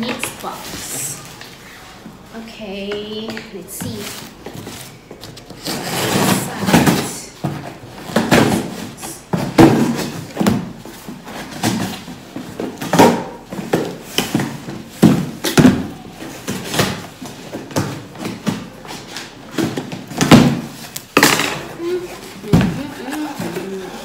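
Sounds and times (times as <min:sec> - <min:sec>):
cardboard scraping and rustling: 0:03.8 - 0:21.0
knocks and thumps on box: 0:06.4 - 0:18.9, 0:19.5 - 0:21.7, 0:22.4 - 0:23.7.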